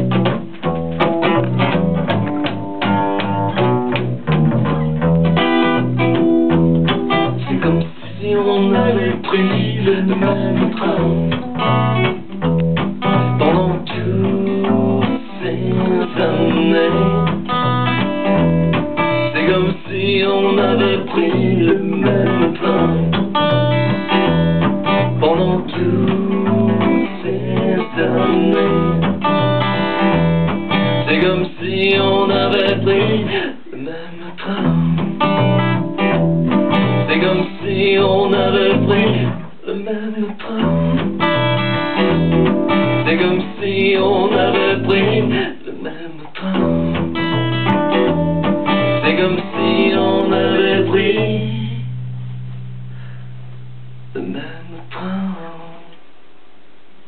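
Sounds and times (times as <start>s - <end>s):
electric bass guitar: 0.0s - 39.6s, 40.3s - 55.7s
acoustic guitar: 0.0s - 57.0s
man singing: 7.1s - 12.2s, 13.1s - 18.0s, 19.0s - 23.7s, 24.9s - 29.6s, 30.8s - 35.4s, 36.9s - 41.3s, 42.8s - 47.2s, 48.7s - 52.0s, 54.1s - 56.0s.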